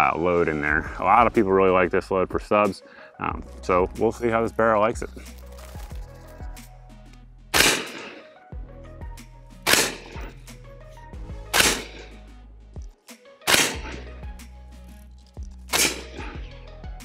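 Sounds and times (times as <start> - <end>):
background music: 0.0 - 17.0
suppressed gunshots: 7.5 - 8.3, 9.6 - 10.4, 11.5 - 12.2, 13.5 - 14.1, 15.7 - 16.4.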